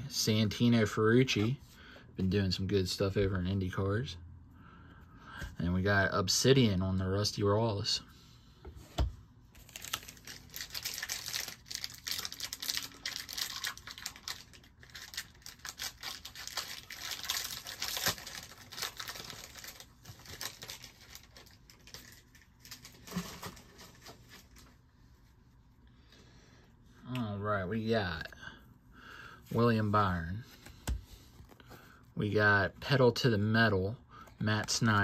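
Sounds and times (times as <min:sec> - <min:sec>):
plastic wrapper crinkling and tearing: 0:09.6 - 0:24.8.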